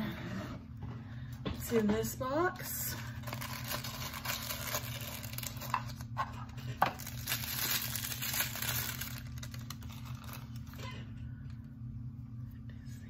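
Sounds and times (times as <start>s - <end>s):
tissue paper rustling: 3.2s - 6.0s, 7.0s - 10.8s.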